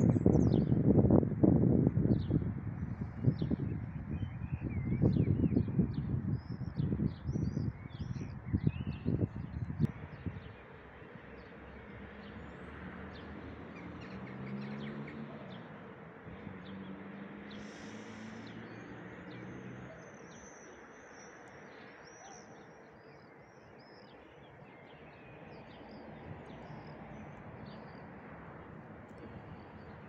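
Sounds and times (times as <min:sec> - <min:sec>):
birds chirping: 0:02.0 - 0:30.0
town background hiss: 0:14.0 - 0:23.0.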